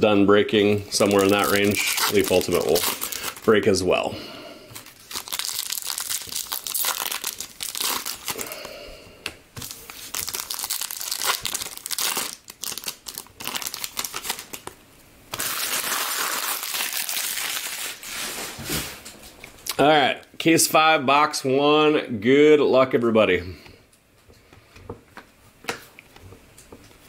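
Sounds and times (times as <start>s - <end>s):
foil wrapper tearing and crinkling: 0.9s - 3.5s, 4.7s - 8.7s, 9.6s - 18.4s.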